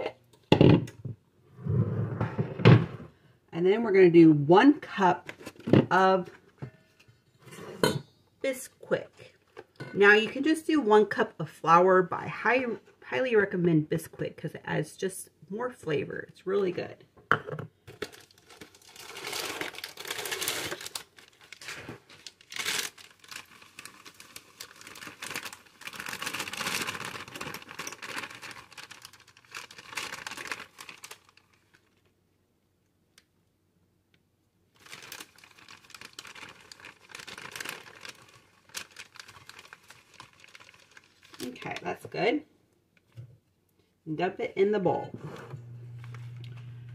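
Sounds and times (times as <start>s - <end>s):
plastic bag crinkling: 17.9s - 32.1s, 34.7s - 42.0s.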